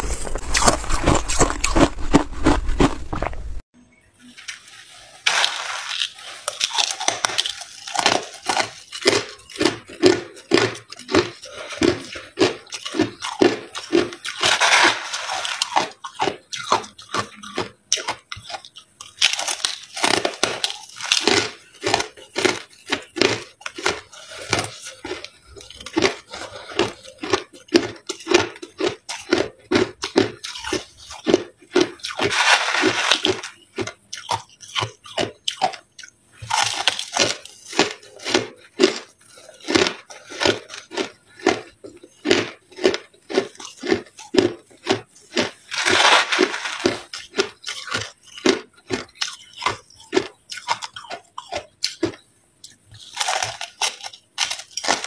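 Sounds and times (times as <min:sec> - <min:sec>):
metal spoon digging in ice: 0:00.0 - 0:03.4, 0:04.3 - 0:27.6, 0:32.0 - 0:35.0, 0:45.4 - 0:50.2
crushed ice crunching: 0:00.0 - 0:03.6, 0:04.3 - 0:16.7, 0:19.2 - 0:33.9, 0:42.2 - 0:49.0.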